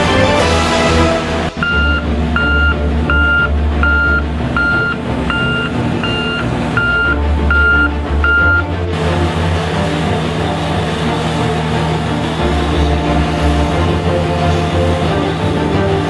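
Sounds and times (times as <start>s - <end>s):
diesel engine running: 0.0s - 16.0s
reversing alarm beeping: 1.6s - 8.7s.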